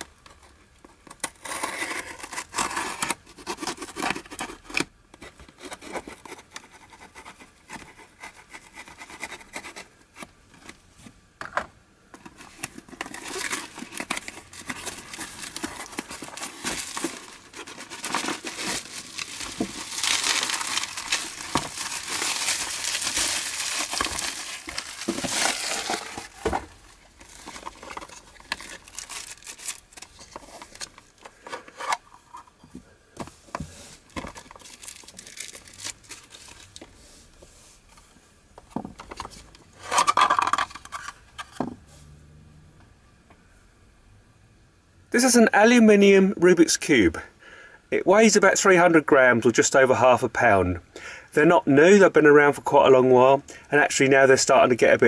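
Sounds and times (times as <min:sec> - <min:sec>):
cardboard box opening: 0:01.2 - 0:04.6, 0:12.4 - 0:31.0
knife scratching packing tape: 0:01.3 - 0:04.7
bubble wrap crinkling: 0:12.5 - 0:31.2, 0:34.0 - 0:36.9.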